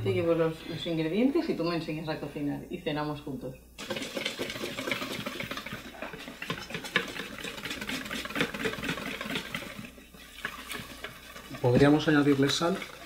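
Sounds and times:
utensil scraping bowl stirring batter: 3.8 - 13.0.

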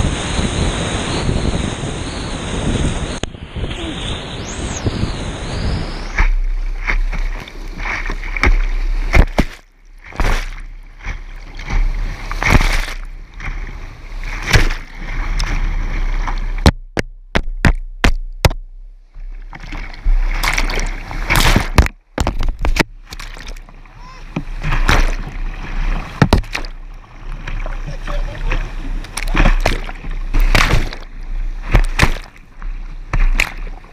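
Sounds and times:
waves hitting the deck: 0.0 - 33.9
paddle stroke splashes: 6.1 - 16.6, 19.2 - 33.9.

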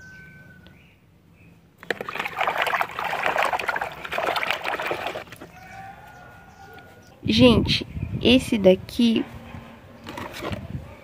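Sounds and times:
hand scrubbing toy underwater: 1.8 - 5.4
water sloshing in a bucket: 1.8 - 5.6.

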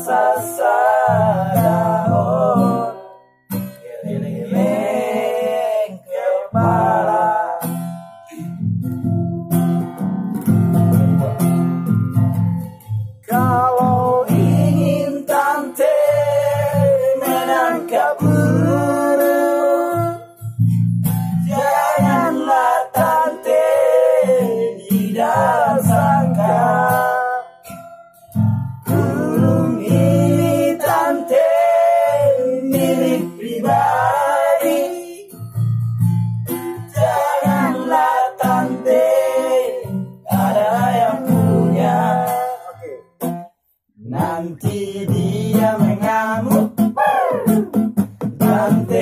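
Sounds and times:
man singing: 0.0 - 3.0, 3.8 - 8.6, 13.2 - 20.2, 21.4 - 27.6, 28.9 - 35.4, 36.9 - 43.0, 44.0 - 49.0
strummed nylon-string guitar: 0.0 - 49.0.

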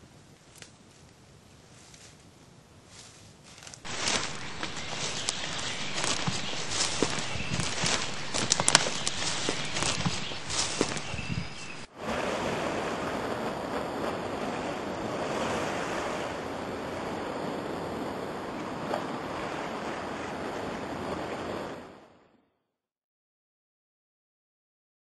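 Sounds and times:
wind: 0.0 - 22.4
sea surf washing on shore: 3.8 - 22.1.

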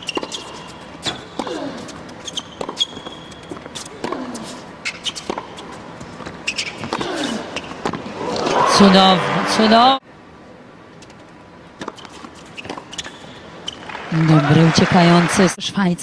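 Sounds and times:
shoe squeaks on court: 0.0 - 7.8, 11.8 - 13.9
racket striking tennis ball: 0.0 - 8.0.

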